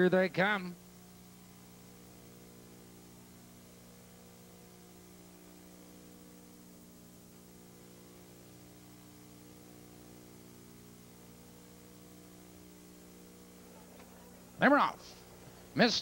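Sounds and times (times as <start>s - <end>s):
faint electrical hum with hiss: 0.0s - 16.0s.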